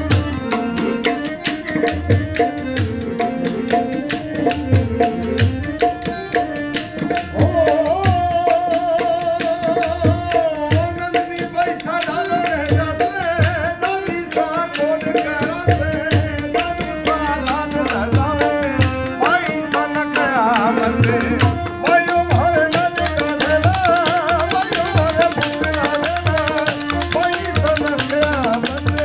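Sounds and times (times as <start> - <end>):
clicking hand percussion: 0.0 - 29.0
harmonium: 0.0 - 29.0
man singing: 7.0 - 29.0.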